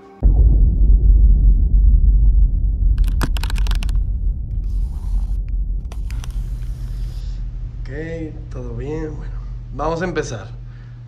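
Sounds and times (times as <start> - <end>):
low rumble on microphone: 0.2 - 11.0
short clicks and rustles: 3.0 - 6.5.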